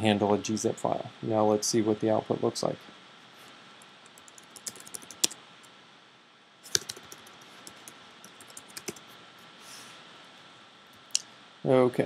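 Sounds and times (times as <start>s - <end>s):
typing on computer keyboard: 4.1s - 5.4s, 6.7s - 9.0s.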